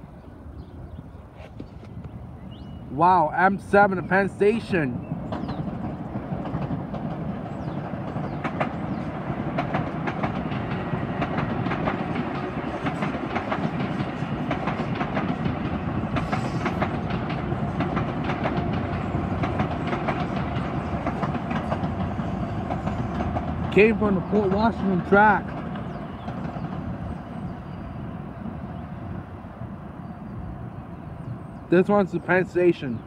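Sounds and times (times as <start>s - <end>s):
train rumbling past: 0.0s - 33.0s
wheels clicking over rail joints: 5.2s - 27.2s.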